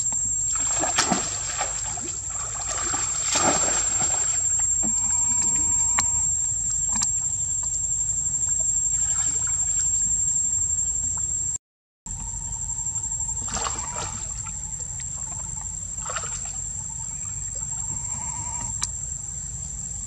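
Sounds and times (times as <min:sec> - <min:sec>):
water splashing and sloshing: 0:00.0 - 0:07.6, 0:08.5 - 0:10.1, 0:13.3 - 0:18.1.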